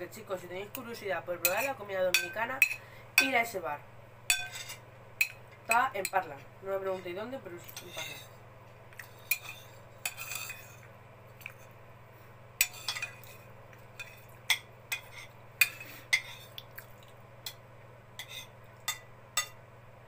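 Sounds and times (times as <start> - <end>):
cutlery clinking on a plate: 4.3 - 5.8, 7.7 - 8.3, 9.0 - 10.8, 12.6 - 13.4, 18.2 - 19.6.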